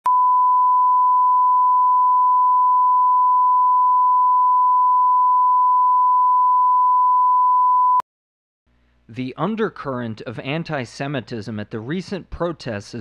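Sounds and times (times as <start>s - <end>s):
steady pure tone beep: 0.0s - 8.0s.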